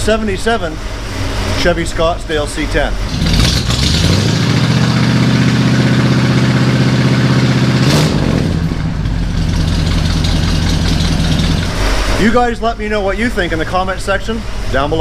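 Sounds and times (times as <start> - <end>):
pickup engine running: 0.8 - 15.0.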